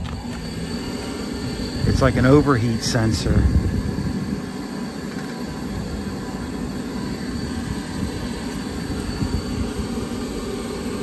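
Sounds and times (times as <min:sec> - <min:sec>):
wind buffeting microphone: 0:01.4 - 0:04.8, 0:05.5 - 0:10.2.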